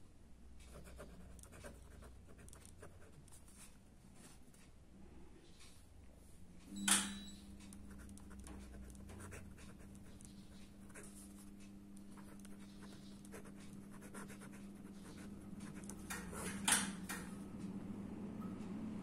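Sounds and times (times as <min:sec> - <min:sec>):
steady low hum: 0:00.0 - 0:19.0
pen scratching on paper: 0:00.7 - 0:03.7, 0:07.9 - 0:16.6.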